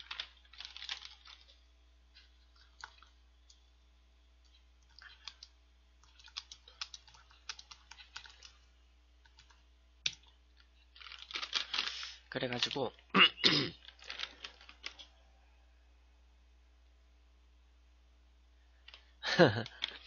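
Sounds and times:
keyboard typing: 0:00.0 - 0:01.6, 0:02.2 - 0:03.6, 0:04.4 - 0:08.6, 0:09.2 - 0:10.4.

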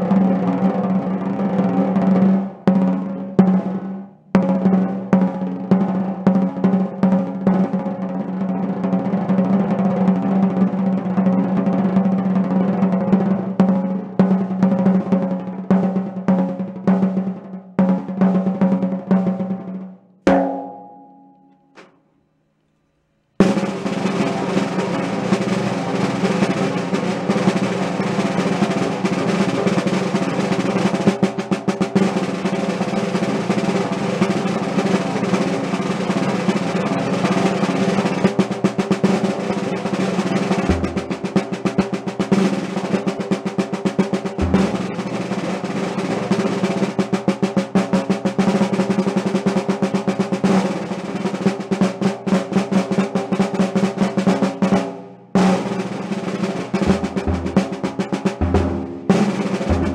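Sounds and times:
snare drum rolls and strokes: 0:00.0 - 0:21.9, 0:23.4 - 0:59.9.

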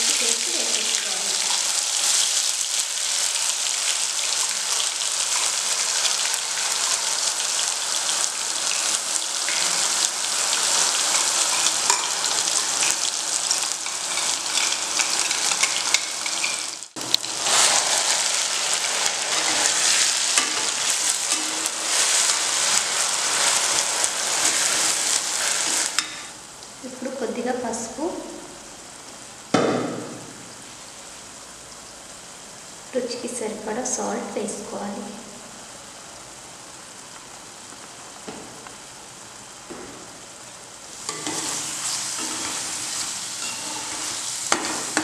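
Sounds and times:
paste sizzling in hot oil: 0:00.0 - 0:26.5, 0:40.7 - 0:45.0.

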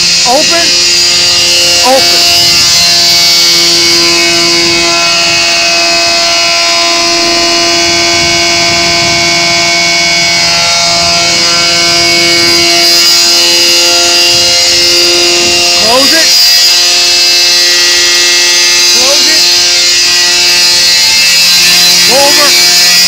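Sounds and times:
blower whining: 0:00.0 - 0:23.0.

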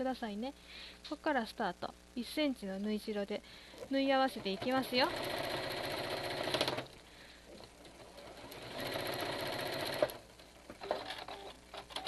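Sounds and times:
sewing machine stitching: 0:04.4 - 0:06.9, 0:07.9 - 0:10.2.

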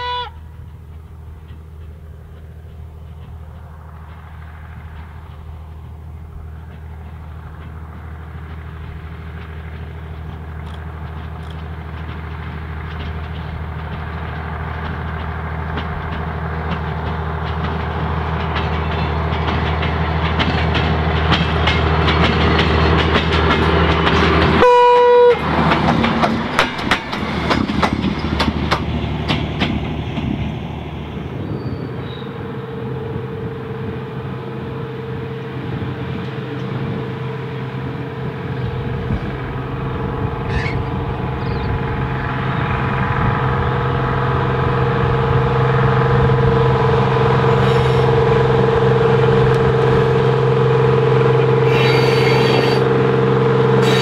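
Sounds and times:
train horn blast: 0:00.0 - 0:00.6, 0:24.5 - 0:25.6, 0:43.8 - 0:54.0
wheels clicking over rail joints: 0:00.0 - 0:33.0, 0:33.8 - 0:54.0
diesel rail motor engine drone: 0:00.0 - 0:54.0.

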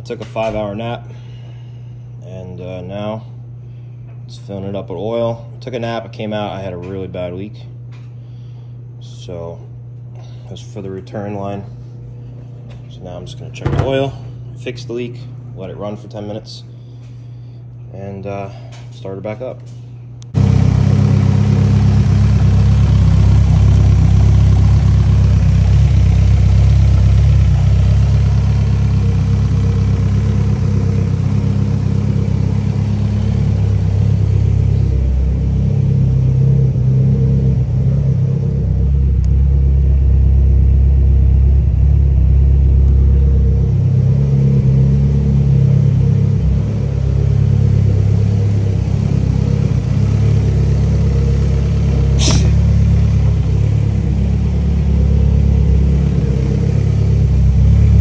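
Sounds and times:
car engine idling: 0:13.0 - 0:14.6, 0:20.3 - 0:58.0.

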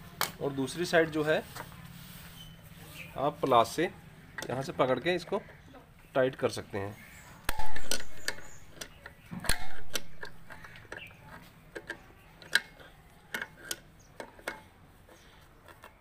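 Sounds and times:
metal tools clicking: 0:07.5 - 0:16.0.

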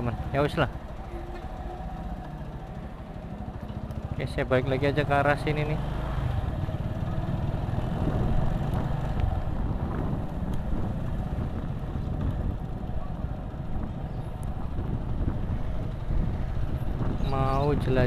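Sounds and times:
motorcycle engine running: 0:00.0 - 0:18.0
wind rushing over microphone: 0:06.2 - 0:18.0.

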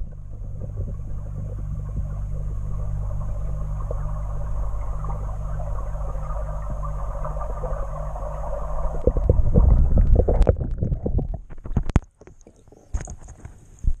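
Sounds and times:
water drips: 0:00.0 - 0:11.0
underwater low hum: 0:00.0 - 0:14.0
water sloshing against camera: 0:00.0 - 0:14.0.

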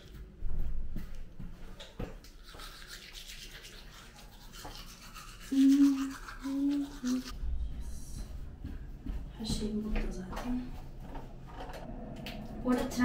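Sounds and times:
toothbrush scrubbing teeth: 0:02.2 - 0:07.4
person humming: 0:05.5 - 0:07.3.

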